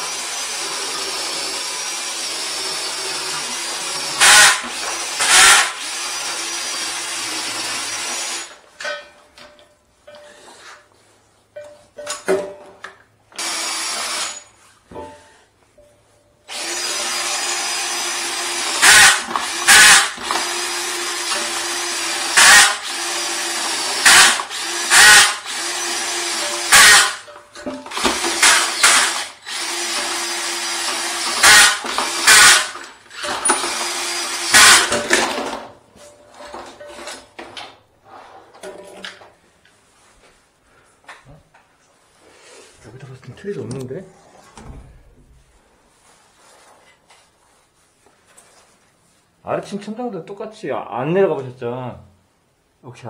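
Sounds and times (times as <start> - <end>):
cordless drill spinning drain cable: 0.0 - 8.6, 13.4 - 14.4, 16.5 - 27.2, 27.9 - 35.5.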